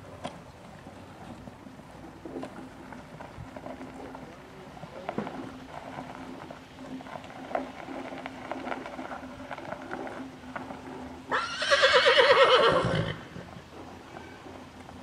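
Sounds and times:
hooves walking on dirt: 0.0 - 15.0
horse whinnying: 11.3 - 13.6.

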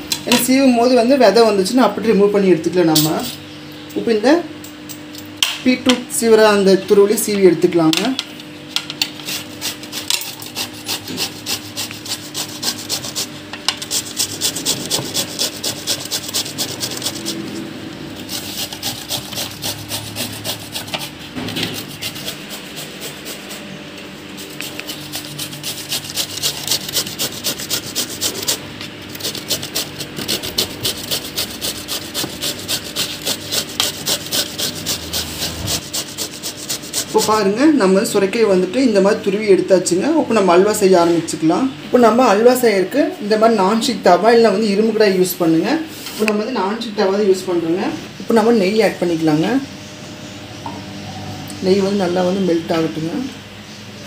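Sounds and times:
gourd rasping on metal grater: 9.2 - 37.6.

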